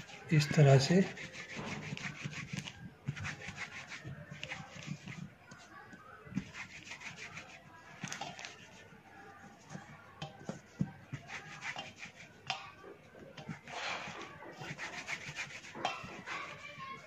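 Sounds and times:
hands rubbing dough on board: 0.0 - 17.0.

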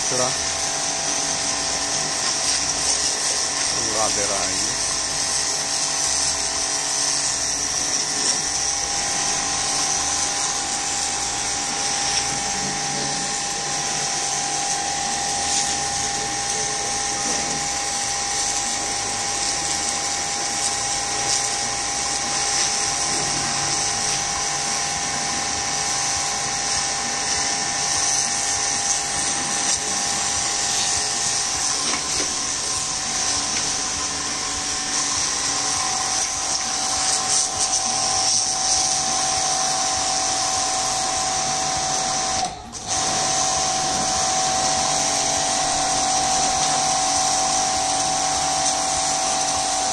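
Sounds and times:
pressure washer motor whine: 0.0 - 49.9
water jet spraying ground: 0.0 - 49.9.

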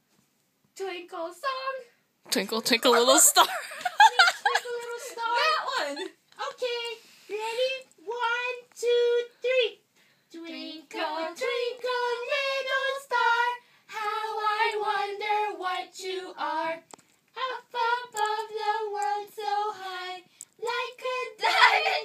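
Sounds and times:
women singing without instruments: 10.3 - 22.0.

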